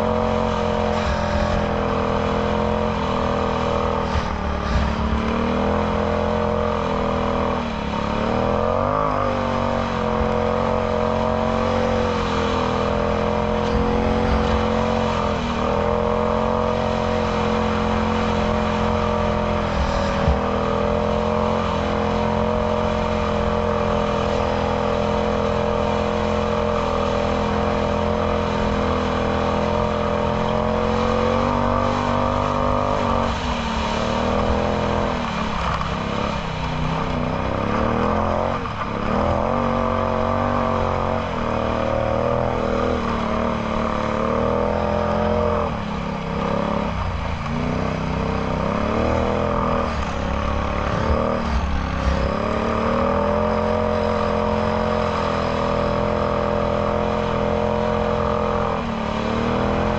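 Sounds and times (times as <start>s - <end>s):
atv engine running: 0.0s - 59.9s.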